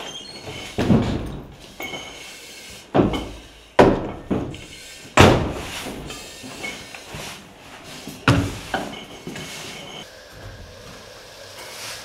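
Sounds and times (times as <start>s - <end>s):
heavy thuds on floor and door: 0.4s - 1.6s, 2.9s - 6.1s, 8.2s - 8.8s.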